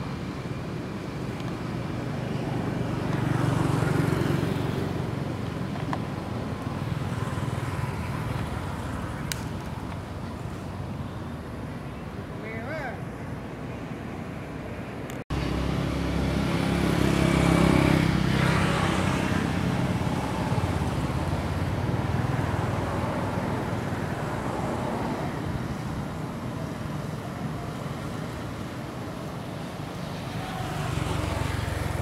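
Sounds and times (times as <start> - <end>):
vehicle driving past: 15.3 - 23.6, 30.1 - 32.0.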